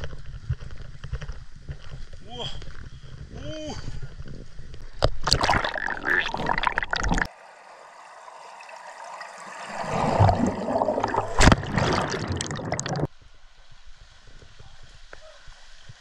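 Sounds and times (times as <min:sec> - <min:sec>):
stream water rushing: 0:07.2 - 0:13.1.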